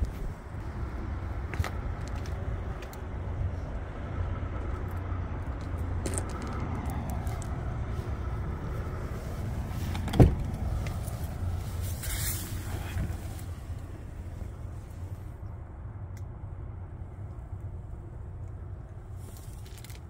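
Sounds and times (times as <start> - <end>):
diesel engine idling: 0.0 - 19.2
cab door thump: 9.9 - 10.6.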